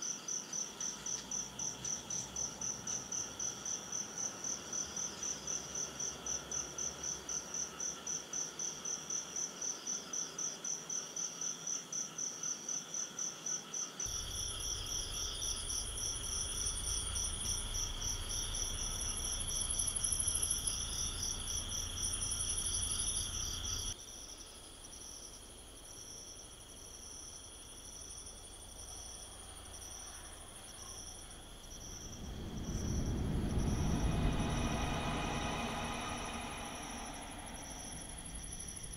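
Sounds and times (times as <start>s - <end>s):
crickets chirping: 0.0s - 38.9s
low rumble: 14.1s - 24.0s, 29.3s - 38.9s.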